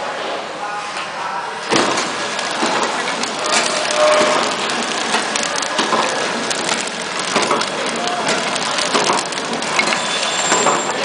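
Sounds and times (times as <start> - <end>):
packaging machine clattering: 1.7 - 11.0
sharp clicks: 2.3 - 10.8.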